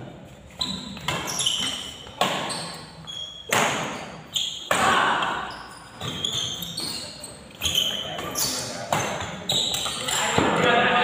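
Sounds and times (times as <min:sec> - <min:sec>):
sneakers squeaking on court: 0:00.4 - 0:10.6
racket hitting shuttlecock: 0:00.8 - 0:02.9, 0:03.5 - 0:07.0.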